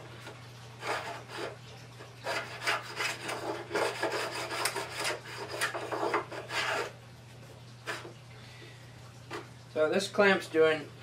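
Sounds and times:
edge plane scraping wood: 0:00.8 - 0:01.6, 0:02.2 - 0:07.0.

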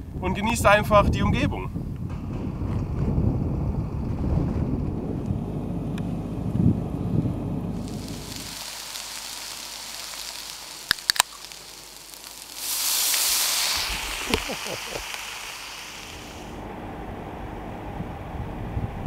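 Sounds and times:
hiss of escaping gas: 0:07.8 - 0:16.6.

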